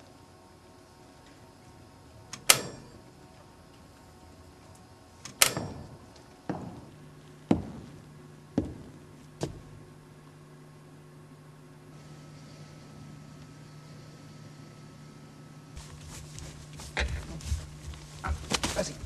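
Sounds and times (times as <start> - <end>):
low steady hum: 0.0 - 19.0
sharp ringing knocks: 2.4 - 3.1, 5.4 - 6.9.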